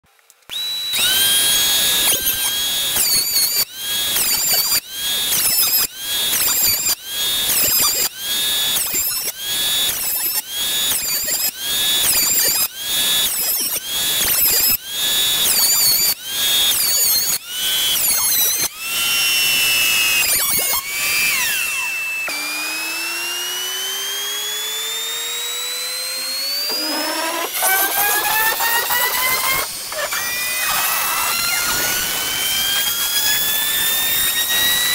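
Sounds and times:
router cutting wood: 0.2 - 34.9
thickness planer whining: 0.2 - 34.9
steady machine whine: 20.8 - 34.9.

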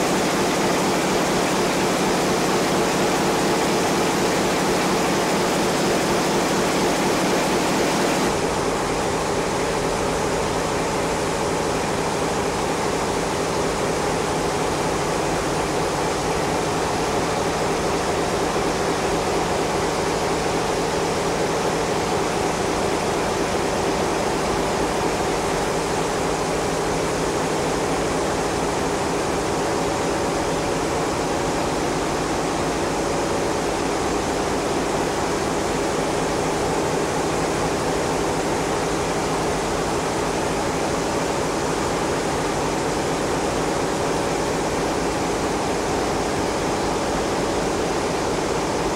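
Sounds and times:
ship engine room machinery din: 0.0 - 9.2.

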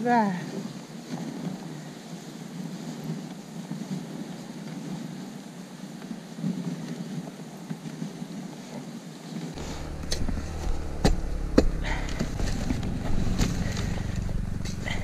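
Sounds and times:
sled running over snow: 0.3 - 15.0
sled knocks and rattles: 9.6 - 15.0.

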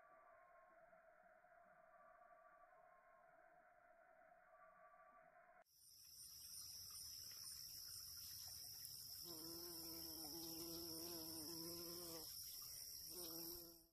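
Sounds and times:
insects trilling: 5.8 - 13.9
bumblebee buzzing: 9.2 - 12.4, 13.0 - 13.9.

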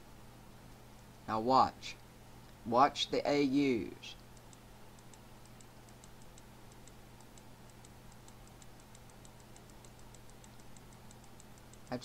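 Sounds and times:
low steady hum: 0.0 - 12.0
computer mouse clicking: 4.2 - 12.0.

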